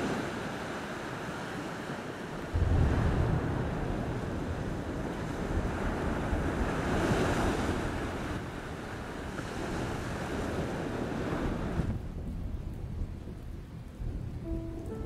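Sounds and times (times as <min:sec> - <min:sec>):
surf breaking on beach: 0:00.0 - 0:12.0
wind rumbling on microphone: 0:00.0 - 0:15.0.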